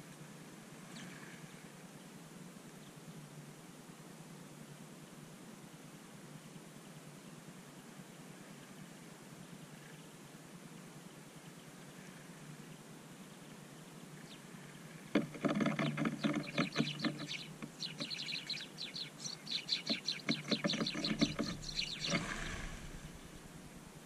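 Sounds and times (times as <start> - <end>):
birds ticking and fluttering: 14.2 - 23.8
flock of birds taking off: 20.7 - 23.8.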